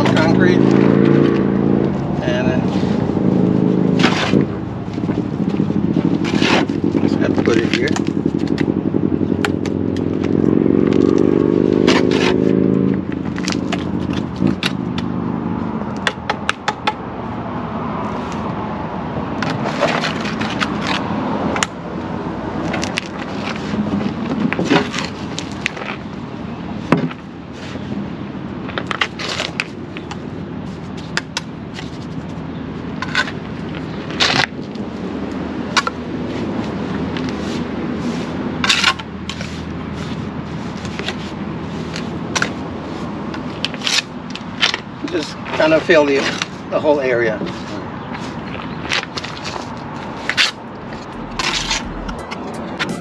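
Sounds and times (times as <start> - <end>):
vehicle engine running: 0.0 - 15.8, 50.2 - 53.0.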